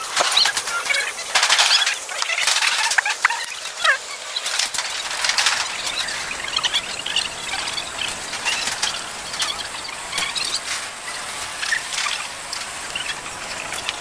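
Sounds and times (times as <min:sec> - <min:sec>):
high-pitched squeaks and chirps: 0:00.0 - 0:14.0
steady hiss: 0:00.0 - 0:14.0.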